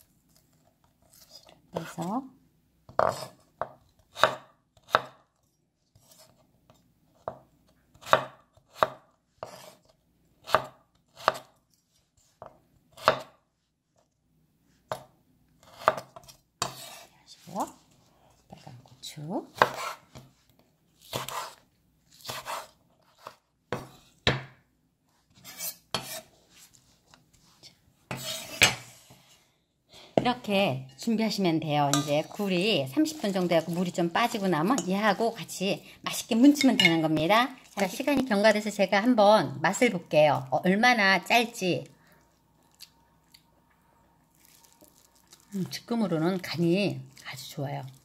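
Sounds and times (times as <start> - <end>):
knife chopping on wooden board: 3.0 - 5.2, 8.0 - 9.8, 10.4 - 11.5, 12.4 - 13.4, 14.9 - 17.0, 19.6 - 20.3, 21.0 - 21.6, 22.2 - 24.6.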